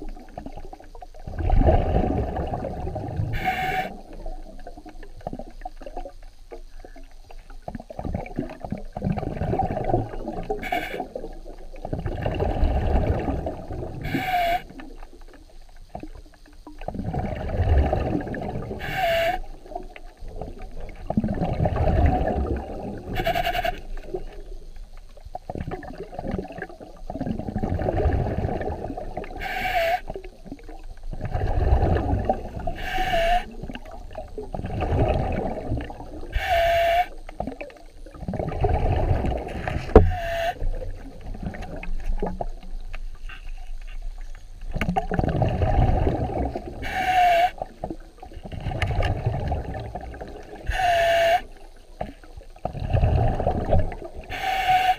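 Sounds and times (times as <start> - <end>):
muffled underwater water surge: 0.0 - 54.9
short hiss with dipping tone: 3.2 - 4.8, 10.4 - 11.3, 13.8 - 17.0, 18.5 - 20.9, 22.5 - 25.4, 29.2 - 34.3, 35.4 - 37.6, 38.4 - 44.5, 46.4 - 48.3, 50.0 - 52.4, 54.0 - 54.9.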